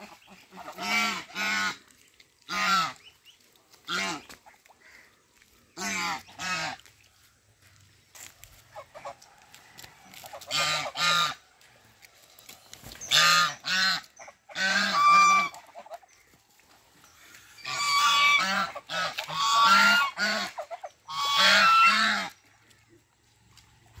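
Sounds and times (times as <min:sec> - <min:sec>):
geese honking: 0:00.0 - 0:06.9, 0:08.6 - 0:09.3, 0:10.2 - 0:11.5, 0:13.0 - 0:16.2, 0:17.2 - 0:22.4.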